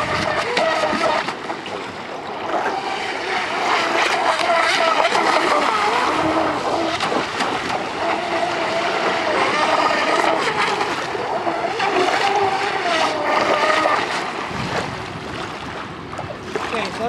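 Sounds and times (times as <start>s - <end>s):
electric motor whine: 0.0s - 1.4s, 2.4s - 14.4s.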